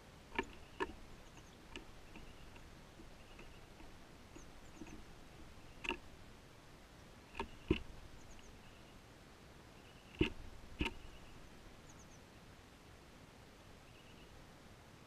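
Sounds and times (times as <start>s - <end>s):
small birds chirping: 0.0s - 6.5s, 7.2s - 9.0s, 9.8s - 12.3s, 13.6s - 14.4s
sharp knocks: 7.4s - 8.2s, 10.2s - 11.4s.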